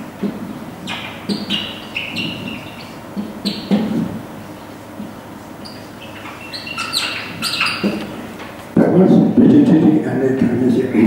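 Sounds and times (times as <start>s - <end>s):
marker squeaking on whiteboard: 0.2s - 8.5s.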